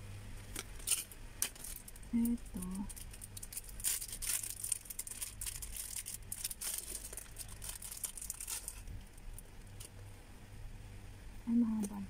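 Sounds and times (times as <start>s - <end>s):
plastic packaging crinkling: 0.4s - 10.0s.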